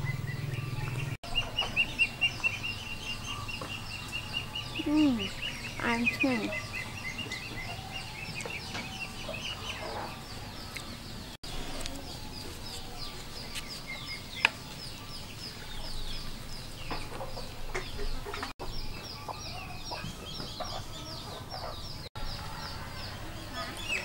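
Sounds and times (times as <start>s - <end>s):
chickens clucking: 0.0s - 24.0s.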